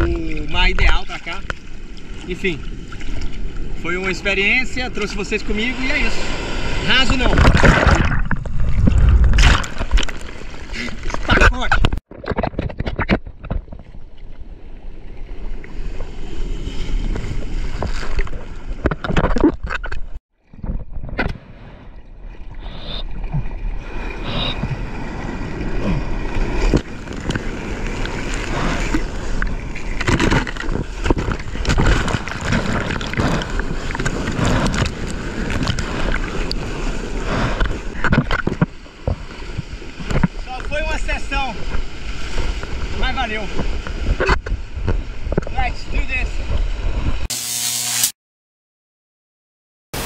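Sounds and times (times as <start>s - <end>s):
sea water sloshing and splashing: 0.3s - 4.4s, 5.0s - 45.4s
wind on microphone: 6.1s - 10.0s, 41.7s - 47.3s.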